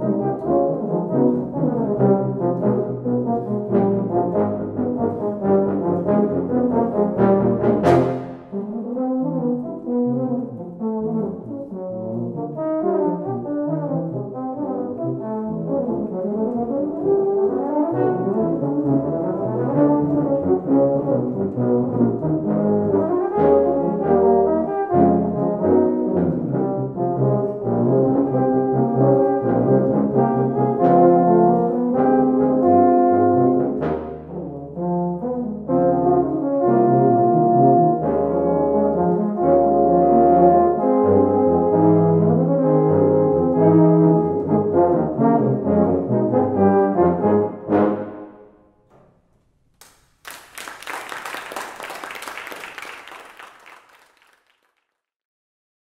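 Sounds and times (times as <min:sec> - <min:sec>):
tuba and euphonium ensemble playing: 0:00.0 - 0:48.6
audience applause: 0:49.8 - 0:55.0.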